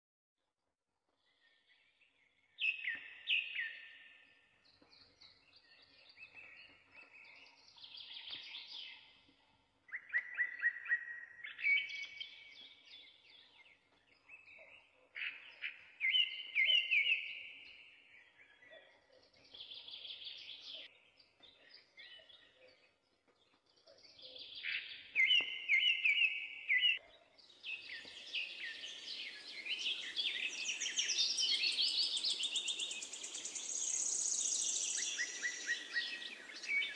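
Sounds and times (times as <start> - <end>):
birds chirping and trilling: 1.2 - 36.9.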